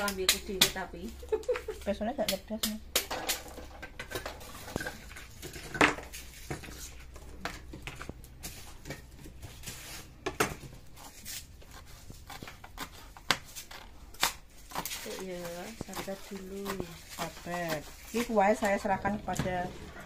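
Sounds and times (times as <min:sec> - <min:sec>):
knife chopping herbs on a board: 0:10.2 - 0:19.5.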